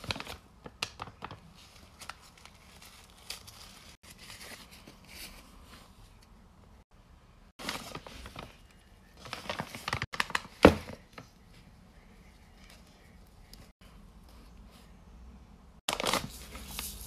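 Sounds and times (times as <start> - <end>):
paper packaging rustling: 0.0 - 5.9, 7.6 - 11.3, 15.9 - 17.0.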